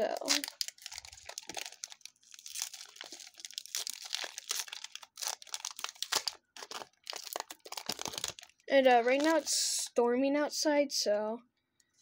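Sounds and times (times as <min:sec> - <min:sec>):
foil wrapper crinkling and tearing: 0:00.0 - 0:09.6.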